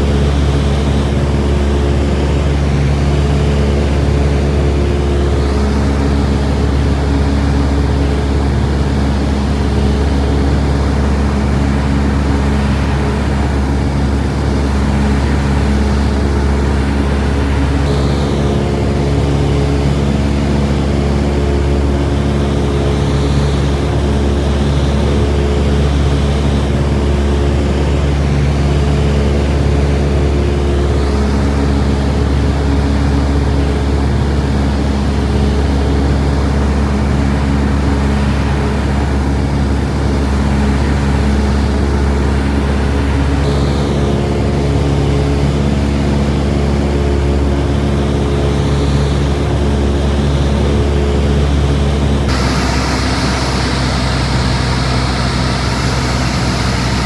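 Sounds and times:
propeller aircraft cabin drone: 0:00.0 - 0:57.0
rushing air noise: 0:47.4 - 0:57.0.

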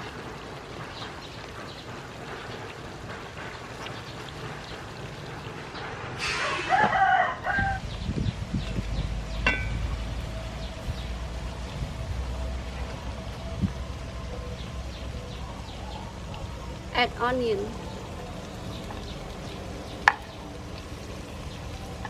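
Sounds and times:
rooster crowing: 0:06.4 - 0:07.8
metallic pot lid clink: 0:09.4 - 0:09.9.

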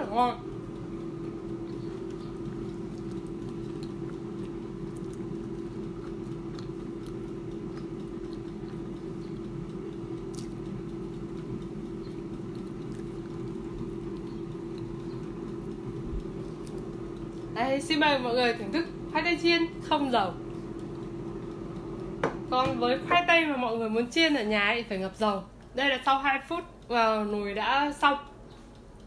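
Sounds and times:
air fryer fan humming: 0:00.0 - 0:29.0
faint small clicks and crackles: 0:00.6 - 0:17.6.

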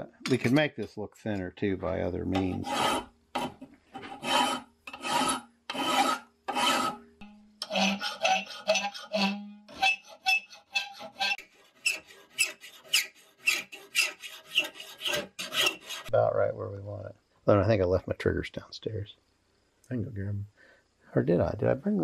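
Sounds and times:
file rasping on iron: 0:02.4 - 0:07.0, 0:07.6 - 0:16.1.

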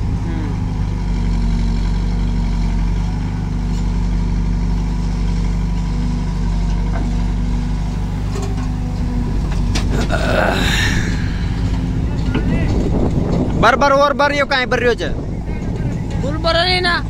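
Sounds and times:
diesel engines droning: 0:00.0 - 0:17.0.

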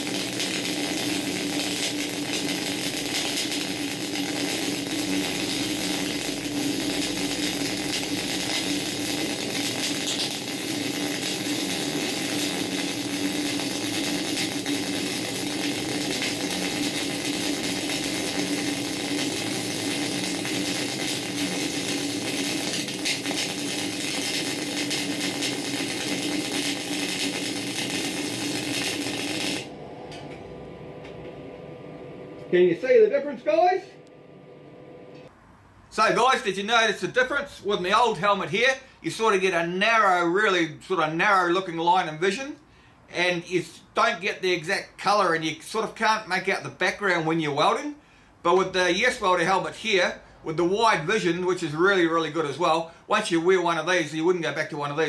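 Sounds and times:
welding arc crackling sizzle: 0:00.0 - 0:35.3, 0:35.9 - 0:42.6, 0:43.2 - 0:47.9, 0:48.5 - 0:55.0
low hum: 0:04.8 - 0:35.3.

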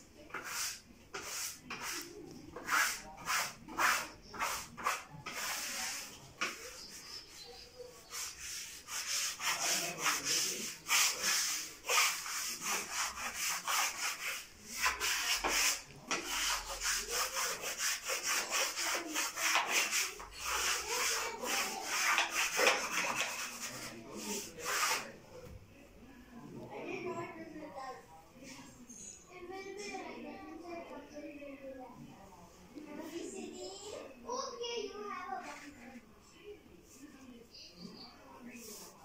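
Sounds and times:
scratchy rubbing on wallpaper: 0:00.2 - 0:25.2, 0:38.5 - 0:39.0.

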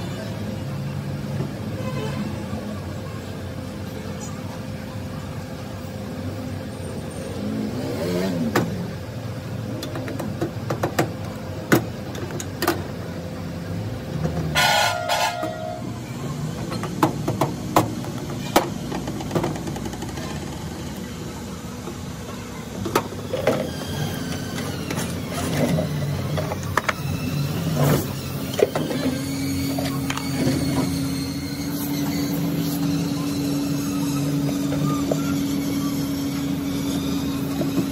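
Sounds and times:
street traffic: 0:00.0 - 0:37.9
vehicle horn honking: 0:01.7 - 0:02.5, 0:14.5 - 0:16.0.

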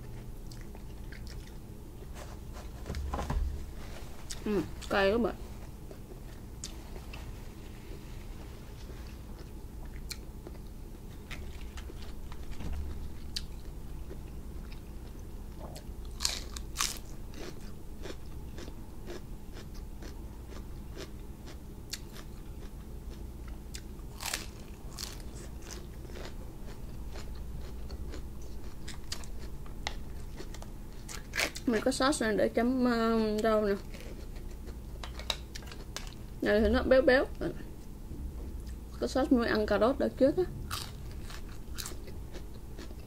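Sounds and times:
chewing and crunching lettuce: 0:00.0 - 0:02.2, 0:08.7 - 0:32.0, 0:33.2 - 0:36.3, 0:40.5 - 0:43.0.

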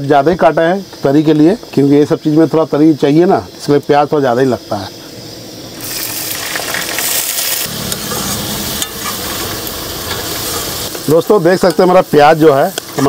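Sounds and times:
onions sizzling in hot oil: 0:03.6 - 0:13.0
steel spoon scraping a pan: 0:07.0 - 0:11.1.

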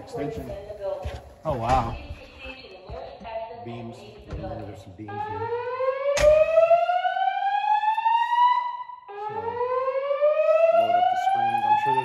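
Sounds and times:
fire alarm whoop tone: 0:05.1 - 0:12.0.

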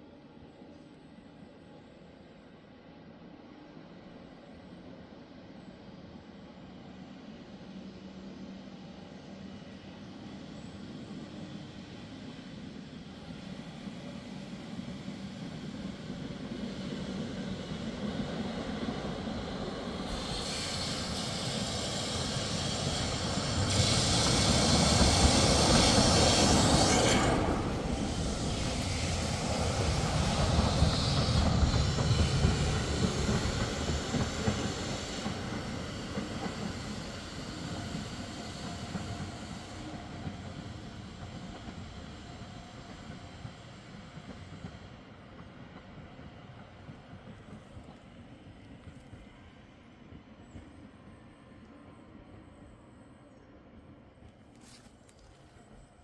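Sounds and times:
tram running on rails: 0:00.0 - 0:56.0.

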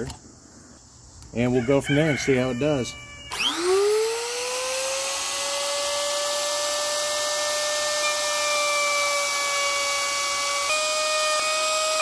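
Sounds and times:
router motor whining: 0:03.3 - 0:12.0.

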